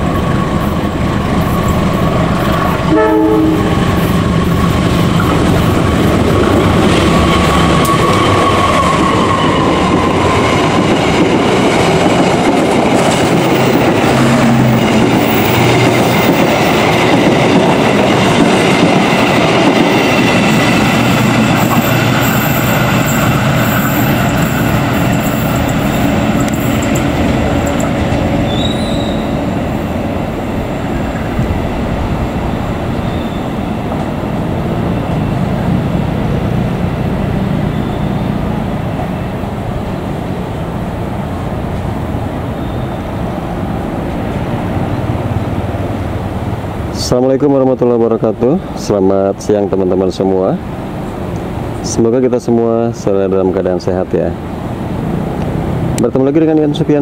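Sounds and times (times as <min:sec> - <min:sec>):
high wheel squealing: 0:00.0 - 0:11.5, 0:13.1 - 0:31.6, 0:32.8 - 0:38.6
clickety-clack of rails: 0:00.0 - 0:37.6, 0:49.1 - 0:57.0
train wheels rumbling on track: 0:00.0 - 0:57.0.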